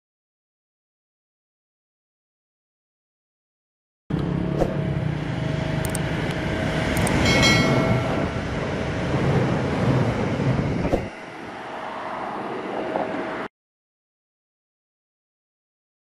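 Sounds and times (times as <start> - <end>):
passenger train passing: 4.1 - 13.5
high ringing tone: 7.0 - 8.8.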